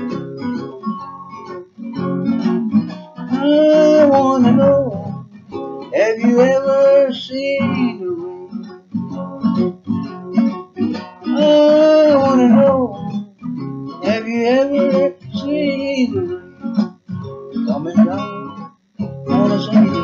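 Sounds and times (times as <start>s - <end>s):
acoustic guitar strumming: 0.0s - 20.0s
man singing: 3.2s - 5.2s, 5.9s - 8.5s, 11.2s - 13.2s, 14.0s - 16.4s, 17.8s - 18.4s, 19.2s - 20.0s.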